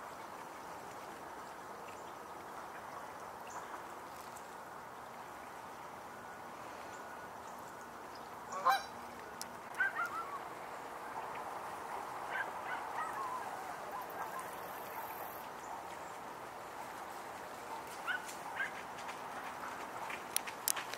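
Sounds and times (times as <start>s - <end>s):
geese honking: 8.5s - 9.0s, 9.7s - 10.4s.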